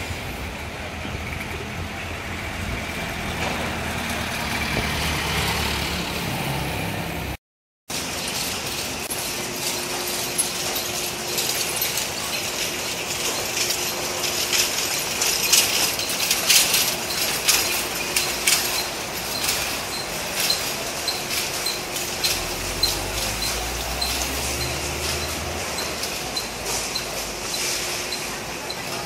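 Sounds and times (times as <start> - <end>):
carriage and harness rattling: 7.9 - 29.0.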